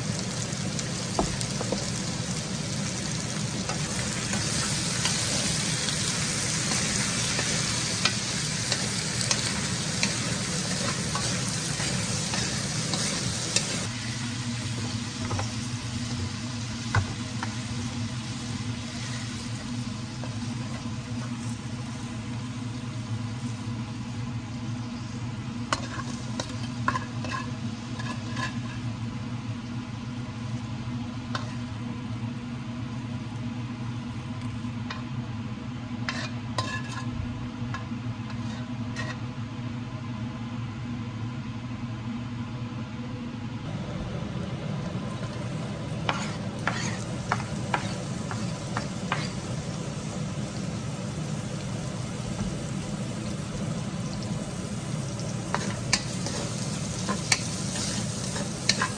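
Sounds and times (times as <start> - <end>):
vegetables sizzling in wok: 0.0 - 35.1, 35.9 - 39.2, 43.7 - 58.9
spatula scraping metal pan: 25.8 - 28.8, 36.1 - 37.1, 46.1 - 48.0.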